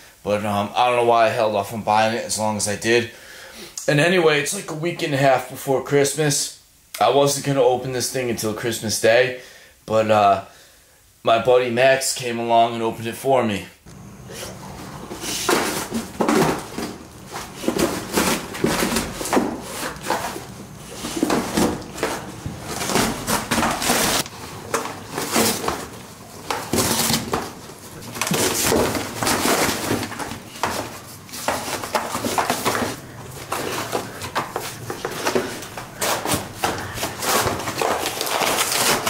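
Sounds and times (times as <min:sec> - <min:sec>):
cardboard and paper ripping: 0:14.3 - 0:39.0.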